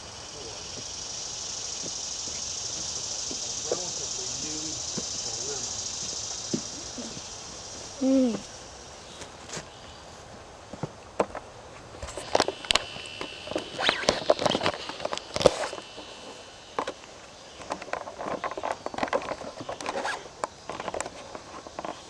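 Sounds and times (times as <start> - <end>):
footsteps on grass: 1.7 - 11.0
thin high whine: 12.0 - 17.7
wooden pole scraping canvas: 13.6 - 15.9, 17.8 - 22.0.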